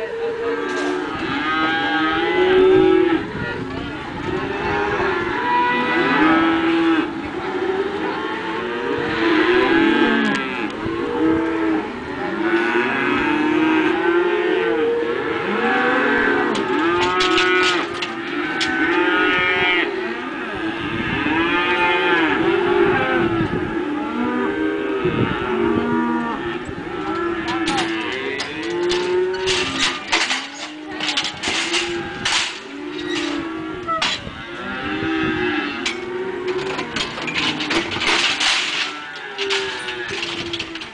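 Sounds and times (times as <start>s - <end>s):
cattle mooing and bawling: 0.0s - 40.9s.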